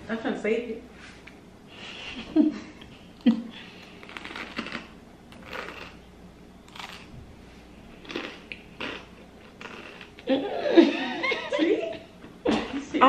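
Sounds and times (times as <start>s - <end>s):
crunchy bite of food: 3.8s - 6.0s, 6.7s - 7.1s, 8.0s - 10.2s.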